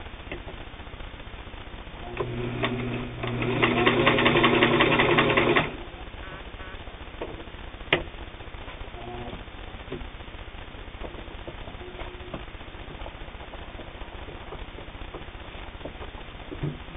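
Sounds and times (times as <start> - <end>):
sewing machine stitching: 2.0 - 5.8.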